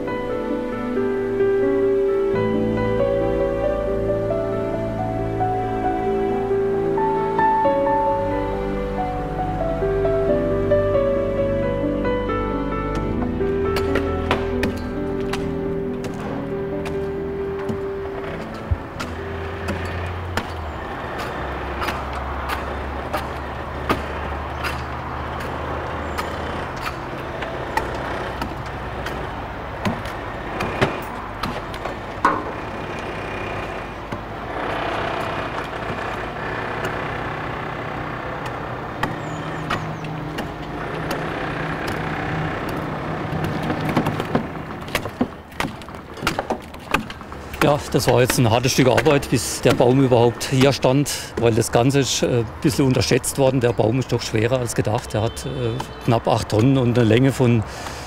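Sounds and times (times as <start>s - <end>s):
heavy machinery engine rumbling: 0.0s - 58.0s
sharp knocks and clanks: 12.9s - 37.4s, 38.4s - 51.6s.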